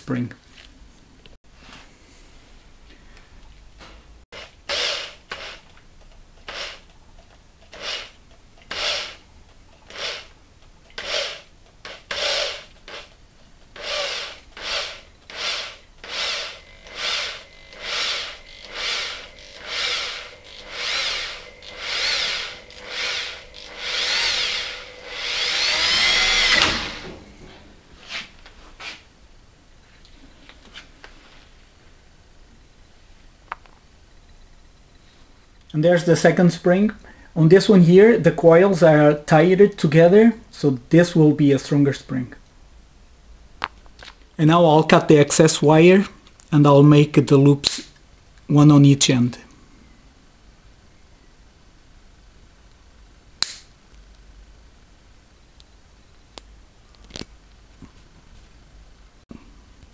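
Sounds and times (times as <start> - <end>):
electric drill spinning: 4.4 - 5.7, 6.5 - 6.9, 7.7 - 9.2, 9.9 - 10.4, 11.0 - 13.2, 13.8 - 27.4.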